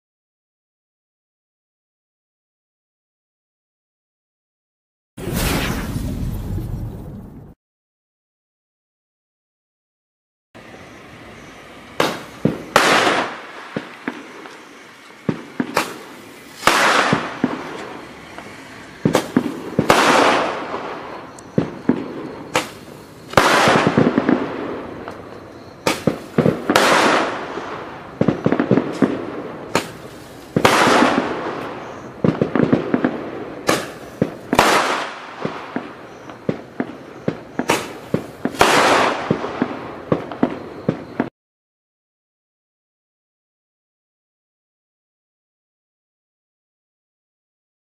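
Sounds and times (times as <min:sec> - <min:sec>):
roman candles firing: 0:11.8 - 0:41.3.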